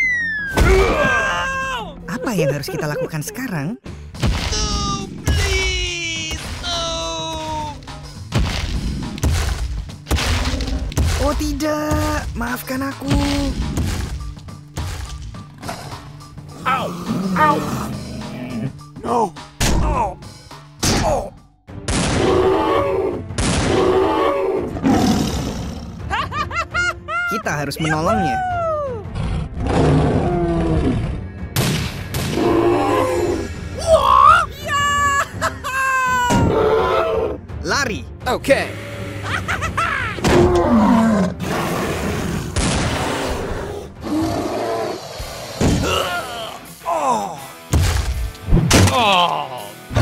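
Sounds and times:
cartoon creature growling roars: 0:16.6 - 0:18.8, 0:29.2 - 0:31.1, 0:32.3 - 0:34.0, 0:40.2 - 0:46.7.

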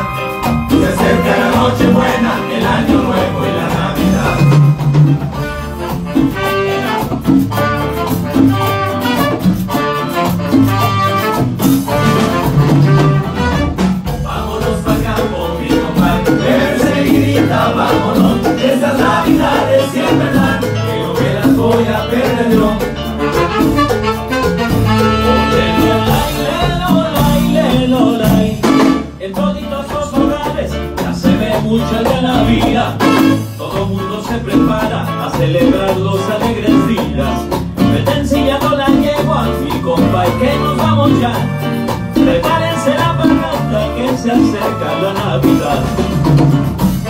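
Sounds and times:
trumpet: 0:00.0 - 0:14.4, 0:22.9 - 0:27.8, 0:28.4 - 0:29.3, 0:32.8 - 0:35.4
keyboard: 0:00.0 - 0:29.5
congas: 0:00.0 - 0:47.0
drum kit: 0:00.0 - 0:47.0
electric bass: 0:00.0 - 0:47.0
guitars: 0:00.0 - 0:47.0
alto saxophone: 0:03.7 - 0:14.2, 0:23.0 - 0:27.6, 0:33.0 - 0:33.7.

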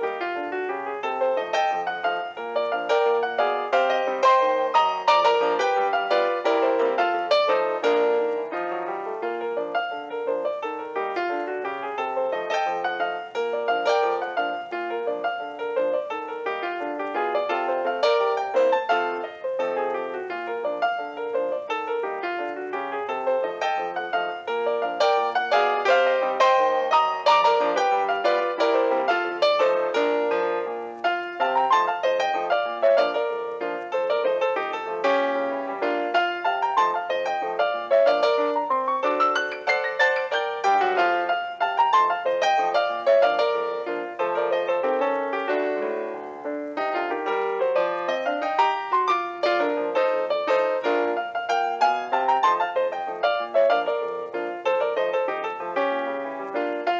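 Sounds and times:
keyboard piano melody: 0:00.0 - 0:56.9.

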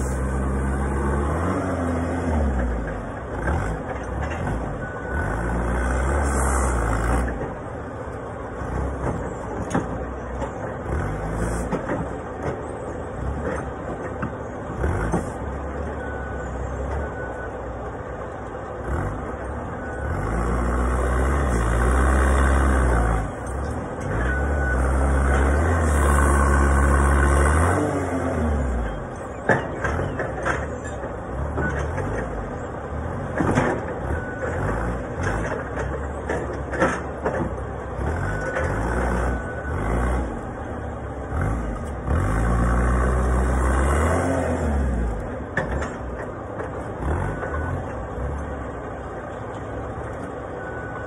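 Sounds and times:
forklift engine revving: 0:00.0 - 0:07.8, 0:08.4 - 0:12.5, 0:18.4 - 0:49.0
short beeps: 0:50.6 - 0:51.0.

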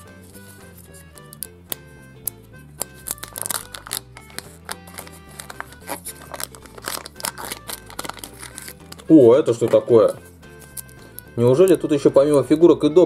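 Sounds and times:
quiet background music: 0:00.0 - 0:13.0
plastic capsule clicking open: 0:01.0 - 0:09.9, 0:10.6 - 0:11.8
foil wrapper tearing: 0:02.8 - 0:09.9, 0:10.6 - 0:11.4
plastic bag crinkling: 0:02.9 - 0:09.9.

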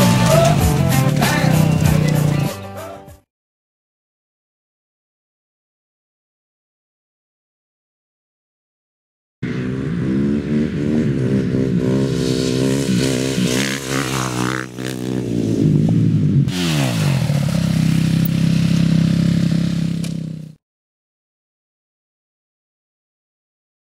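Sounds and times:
motorcycle engine revving: 0:00.0 - 0:02.6, 0:09.4 - 0:20.6.

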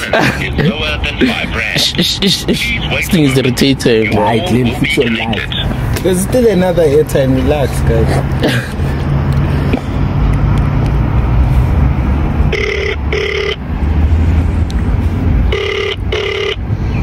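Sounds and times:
telephone ringback tone: 0:12.5 - 0:13.6, 0:15.5 - 0:16.6.

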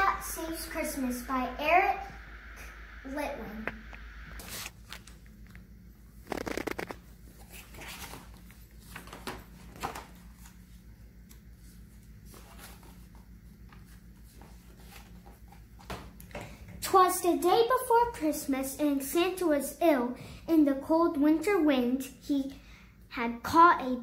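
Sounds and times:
low steady hum: 0:00.0 - 0:19.0
book pages turning: 0:04.4 - 0:05.5, 0:06.2 - 0:10.6.

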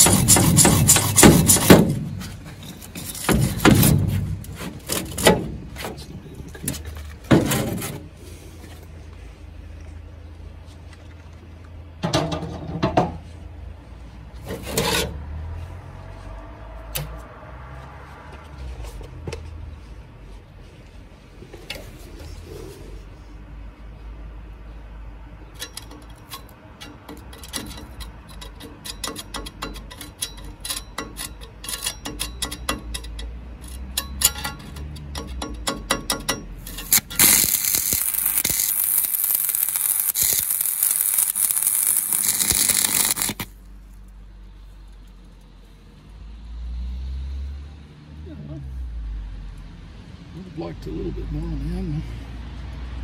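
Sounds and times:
welding arc crackling and hissing: 0:00.0 - 0:01.8, 0:36.7 - 0:43.6.

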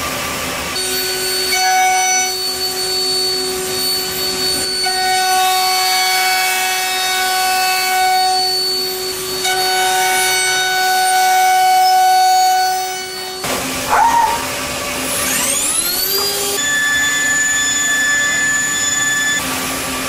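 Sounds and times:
ringing metal cutting tone: 0:00.8 - 0:05.9
spindle whine: 0:13.4 - 0:14.8.

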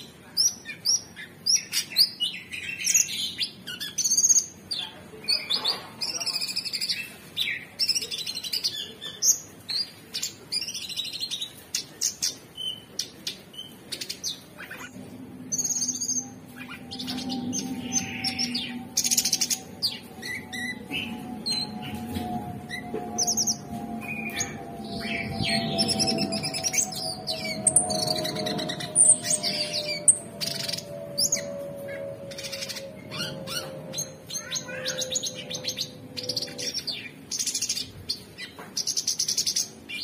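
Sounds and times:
bird singing chirps and trills: 0:00.0 - 0:40.0
steady low hum: 0:14.2 - 0:38.1.

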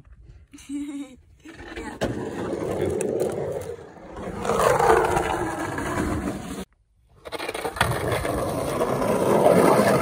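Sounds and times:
skateboard wheels rolling on concrete: 0:01.3 - 0:10.0.

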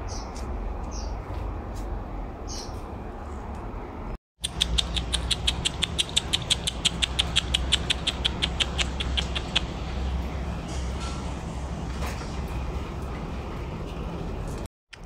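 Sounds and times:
kissing squeaks with lips: 0:04.4 - 0:09.7.

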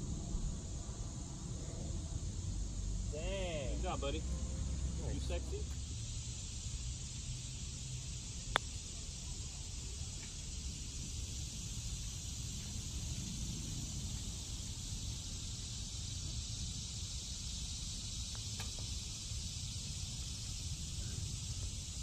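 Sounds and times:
steady high hiss: 0:00.0 - 0:22.0.

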